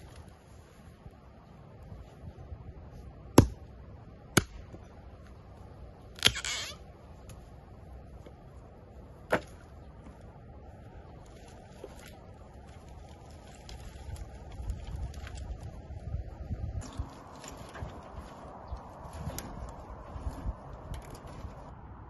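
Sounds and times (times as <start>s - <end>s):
wood and twigs splintering: 4.4s - 21.7s
branches cracking: 11.0s - 21.7s.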